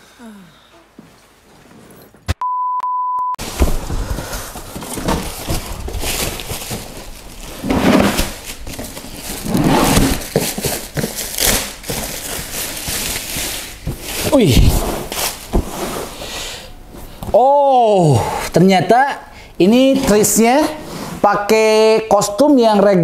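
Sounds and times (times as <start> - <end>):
short electronic beep: 2.4 - 3.4
plastic wrap crinkling: 3.4 - 15.6.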